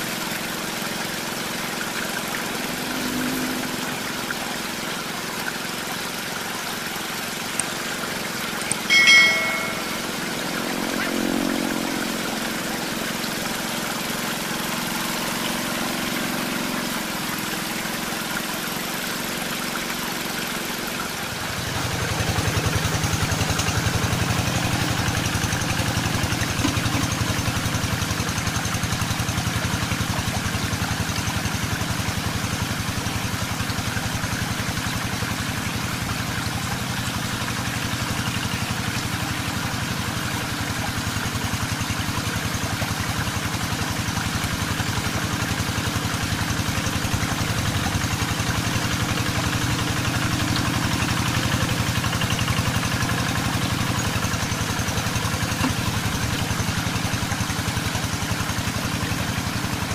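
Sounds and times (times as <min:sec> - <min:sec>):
tractor engine running: 0:21.6 - 0:31.0, 0:38.0 - 0:59.9.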